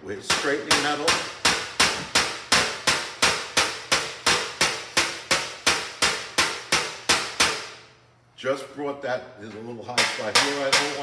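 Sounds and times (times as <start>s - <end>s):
hammer tapping sheet metal: 0.2s - 7.9s, 9.9s - 11.0s.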